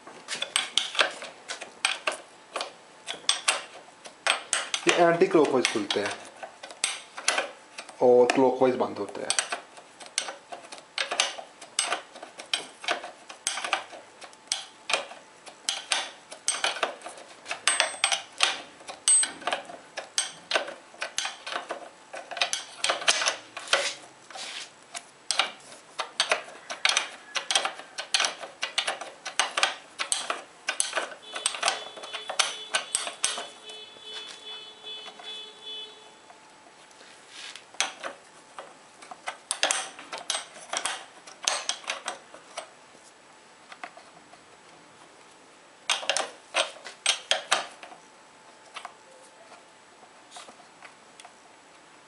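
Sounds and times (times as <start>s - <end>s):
wrench clinking on bolt: 15.7s - 16.9s, 17.6s - 19.6s, 26.2s - 33.6s.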